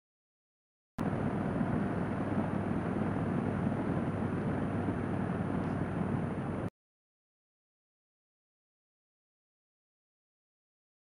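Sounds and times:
wind rushing on microphone: 1.0s - 6.7s.

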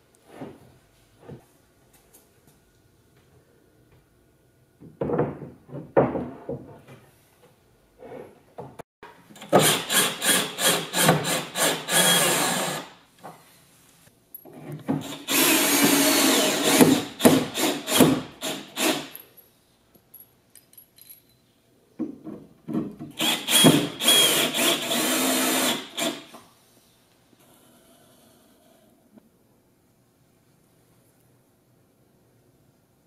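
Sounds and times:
drill driving screws into wood: 9.4s - 13.0s, 15.0s - 19.2s, 23.1s - 26.4s.

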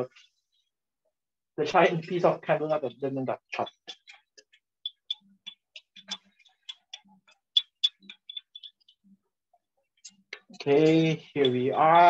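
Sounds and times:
egg frying in oil: 3.6s - 9.1s.

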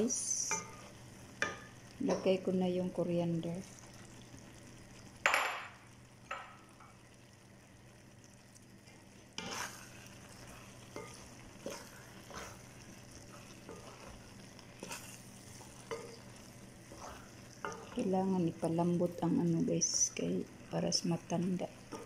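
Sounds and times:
faint steady hum: 0.0s - 22.0s
spatula scraping rice in pan: 9.4s - 18.0s.

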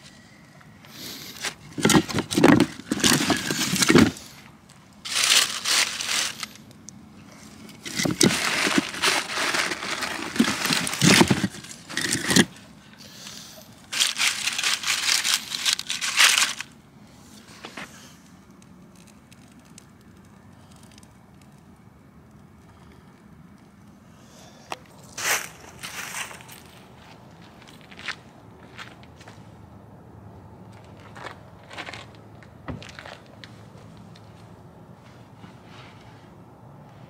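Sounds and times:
dry leaves crunching: 1.1s - 4.4s, 5.0s - 6.7s, 7.5s - 12.6s, 13.8s - 16.8s, 25.0s - 28.2s
plastic bag crinkling: 1.8s - 4.3s, 5.0s - 6.6s, 7.8s - 12.6s, 13.8s - 16.8s.

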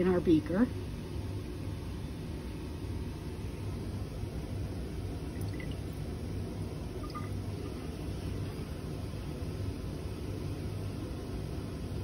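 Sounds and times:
low background hum: 0.0s - 12.0s
water squirting into glass: 5.4s - 5.9s.

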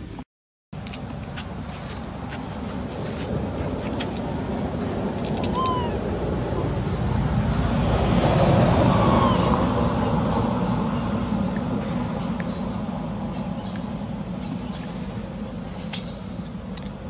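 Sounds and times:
high descending squeak: 5.5s - 6.0s, 8.9s - 9.6s.

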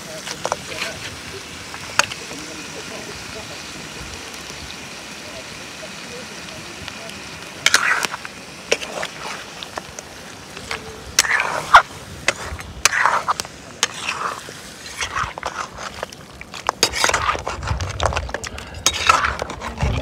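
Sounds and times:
spoon and spatula scraping a wok: 0.1s - 3.2s, 7.6s - 20.0s.

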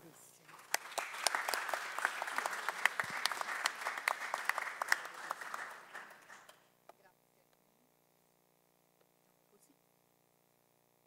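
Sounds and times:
audience applauding: 0.4s - 6.7s.

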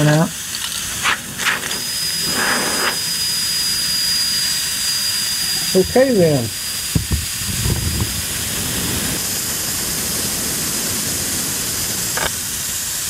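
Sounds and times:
air hissing out of tire: 0.4s - 13.0s.

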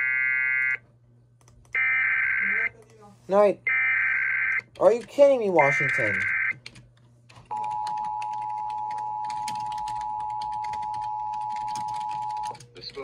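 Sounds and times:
steady dual tone alert: 1.8s - 2.8s, 3.6s - 4.7s.

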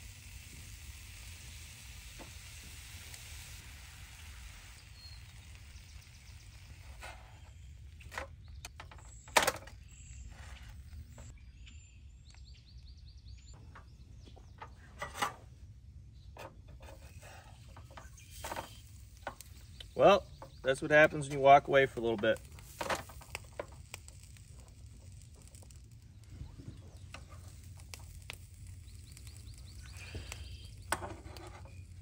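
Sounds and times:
sandwich sizzling in a frying pan: 0.0s - 9.2s, 16.9s - 32.0s.

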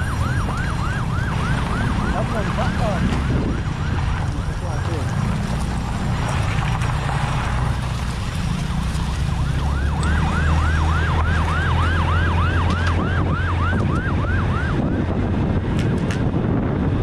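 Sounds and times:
emergency siren yelping: 0.0s - 5.4s, 8.8s - 16.0s.

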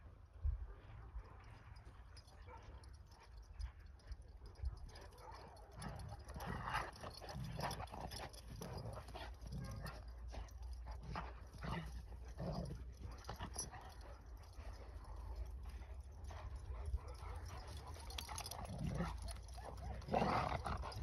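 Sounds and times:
dogs vocalising while play-fighting: 4.8s - 21.0s.

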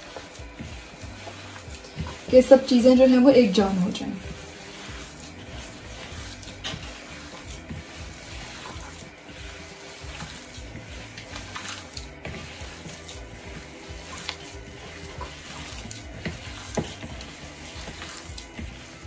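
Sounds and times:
glove rustling: 0.0s - 2.8s, 3.4s - 19.0s
wet squelching of minced meat: 4.2s - 19.0s.

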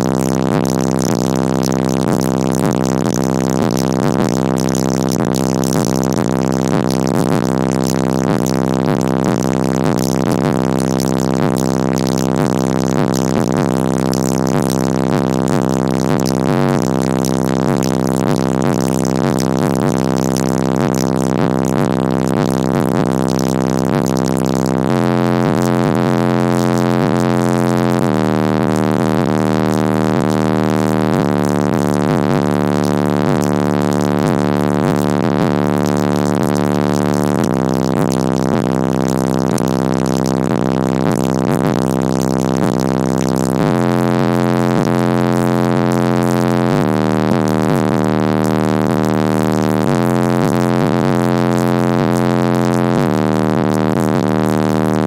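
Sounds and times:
heavy bass music from car subwoofers: 0.0s - 55.0s.

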